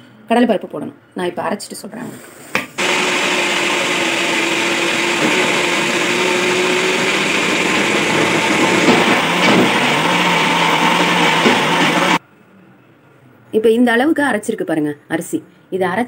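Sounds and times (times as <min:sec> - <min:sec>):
electric mixer grinder grinding: 0:02.8 - 0:12.2.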